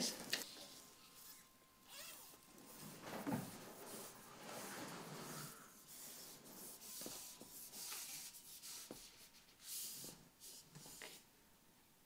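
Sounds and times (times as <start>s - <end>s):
rod sections sliding and scraping: 2.2s - 7.2s.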